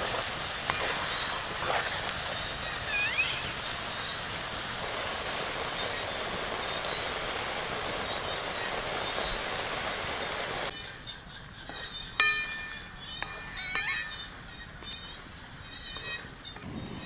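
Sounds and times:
water hissing: 0:00.0 - 0:17.0
short rising call: 0:02.8 - 0:03.6.

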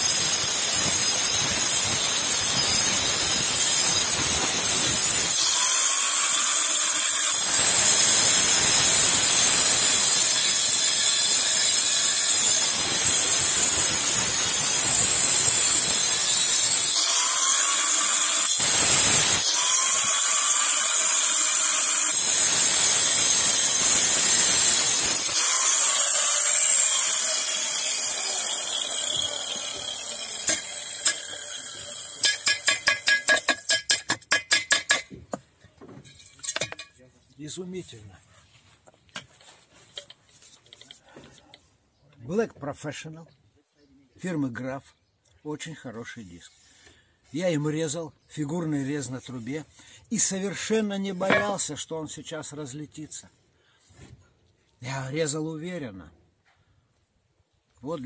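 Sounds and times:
angle grinder cutting steel pipe: 0:00.0 - 0:35.0, 0:51.2 - 0:51.7.

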